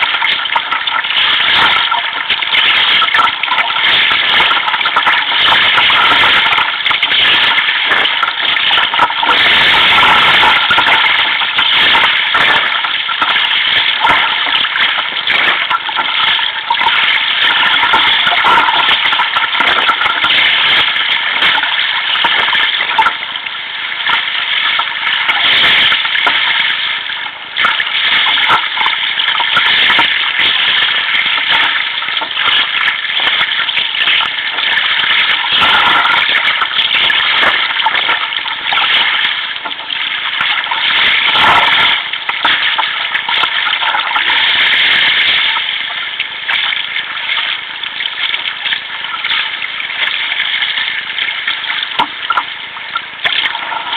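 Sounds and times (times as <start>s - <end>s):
rough sea water splashing on kayak: 0.0s - 23.2s.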